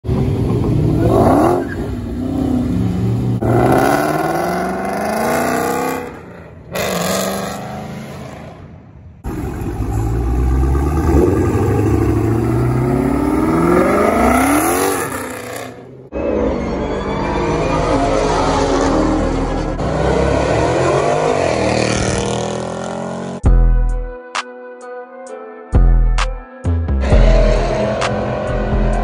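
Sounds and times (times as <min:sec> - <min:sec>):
car engine revving and accelerating: 0:00.1 - 0:16.1, 0:17.5 - 0:23.4, 0:27.0 - 0:29.0.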